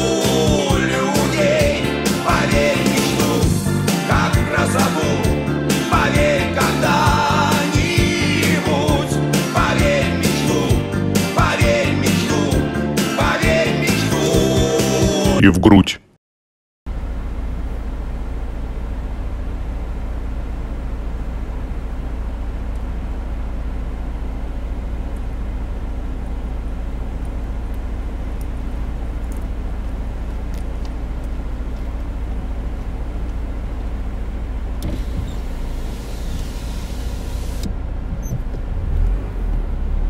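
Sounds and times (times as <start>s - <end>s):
car engine idling: 16.9s - 40.0s.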